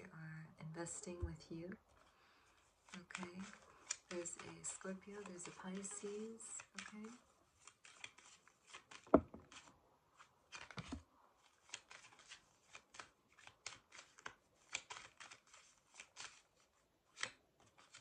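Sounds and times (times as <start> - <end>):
cards being shuffled: 2.0 - 18.0
knock: 9.1 - 9.4.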